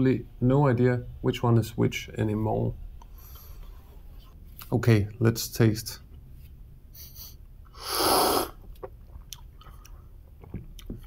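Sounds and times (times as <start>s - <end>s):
person slurping coffee: 7.8s - 8.7s.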